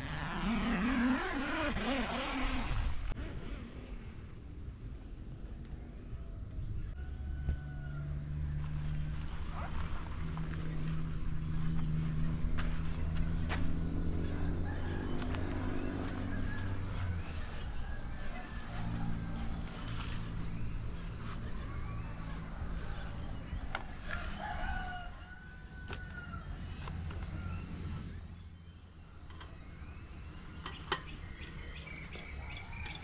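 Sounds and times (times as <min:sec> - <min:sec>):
high insect hum: 0:04.3 - 0:33.0
rooster crowing: 0:06.2 - 0:09.3, 0:14.2 - 0:20.4, 0:21.3 - 0:27.9.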